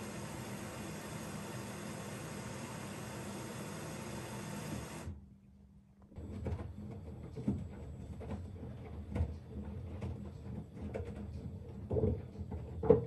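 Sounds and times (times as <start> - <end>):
hiss of water filling: 0.0 - 5.0
faint machine hum: 0.0 - 13.0.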